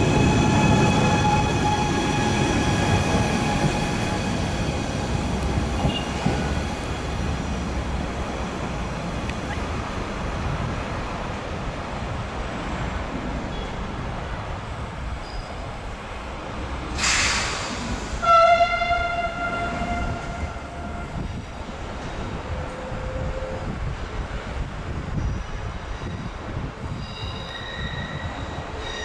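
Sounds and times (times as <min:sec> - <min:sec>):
electric train rumbling: 0:00.0 - 0:29.0
short hiss: 0:17.0 - 0:18.1
train horn: 0:18.2 - 0:21.2.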